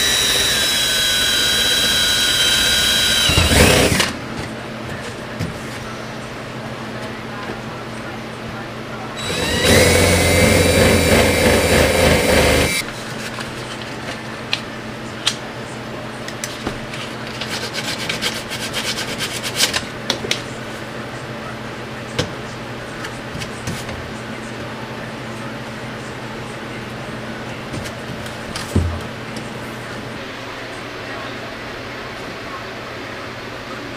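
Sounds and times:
power drill boring through plastic pipe: 0.0s - 4.1s, 9.2s - 12.8s.

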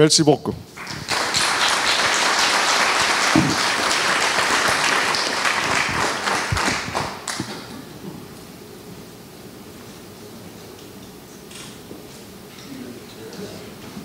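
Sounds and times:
audience applause: 0.8s - 7.7s.

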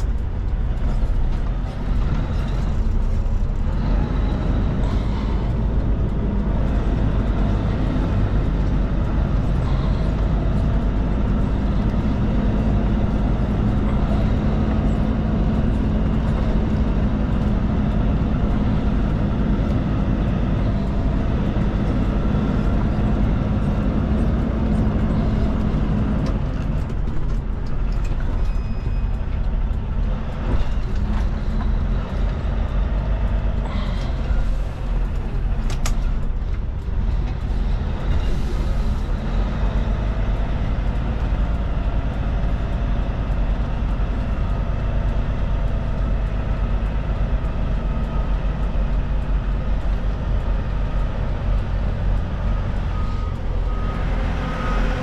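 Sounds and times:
diesel truck engine running: 0.0s - 55.0s
click: 35.7s - 36.1s.

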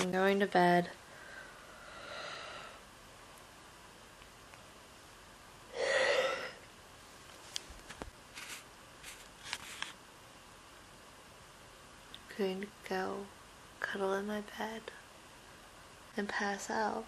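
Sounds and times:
rustles: 7.2s - 10.0s.

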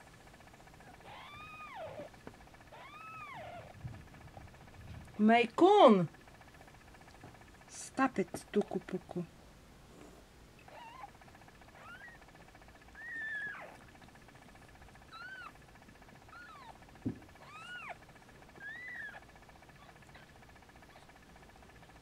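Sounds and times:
kitten mewing: 1.0s - 2.1s, 2.7s - 3.7s, 10.7s - 11.1s, 13.0s - 13.8s.

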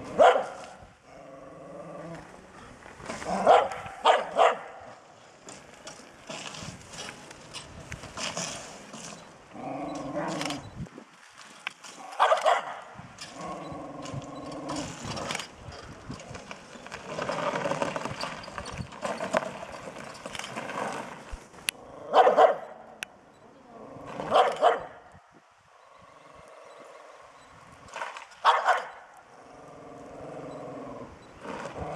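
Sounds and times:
small dog barking: 0.1s - 0.6s, 3.4s - 4.8s, 12.2s - 12.9s, 22.1s - 22.8s, 24.2s - 25.0s, 28.4s - 29.0s.

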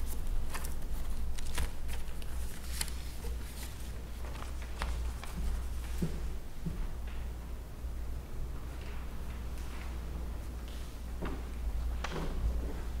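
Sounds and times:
paper rustling: 0.0s - 6.2s
steady low hum: 0.0s - 13.0s.

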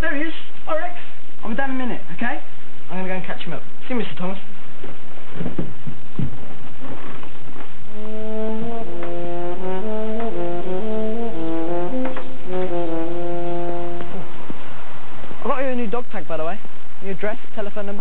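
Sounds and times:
brass chords: 7.8s - 15.9s.

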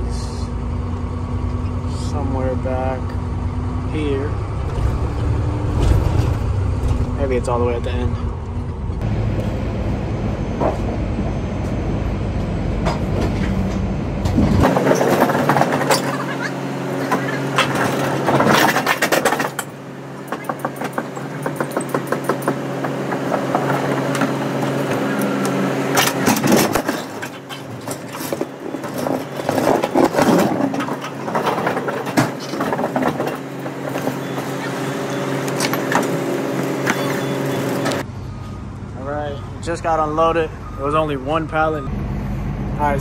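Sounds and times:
metal clanking and rattling: 12.8s - 25.2s, 25.9s - 36.2s.

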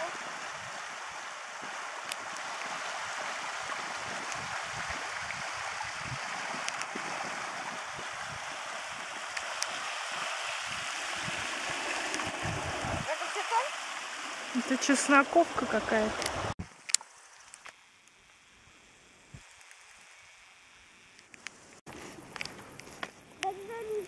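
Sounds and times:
stream flowing over rocks: 0.0s - 18.1s.

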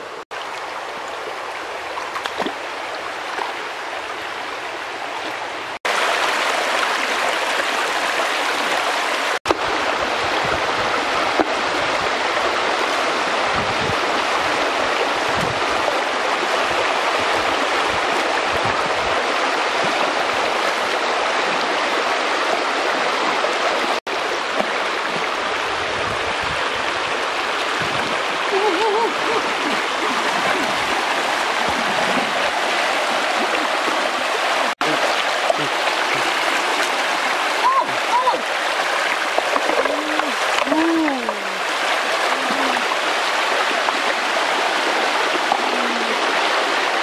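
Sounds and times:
stream rushing over stones: 0.0s - 47.0s
people wading and splashing: 1.9s - 3.7s, 24.0s - 25.6s, 27.2s - 47.0s.

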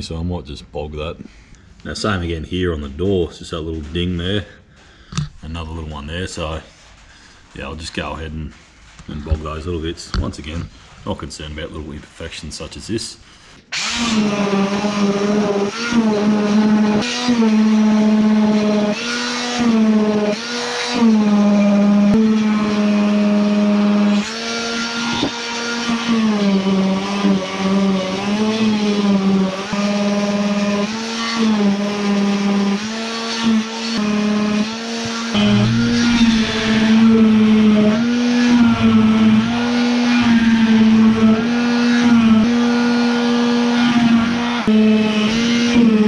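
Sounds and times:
electric sander running: 13.7s - 46.0s.

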